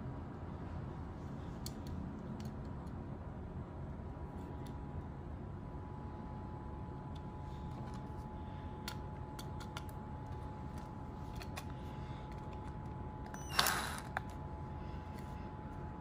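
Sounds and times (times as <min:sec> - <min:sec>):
faint steady hum: 0:00.0 - 0:16.0
cordless drill whirr: 0:13.2 - 0:14.4.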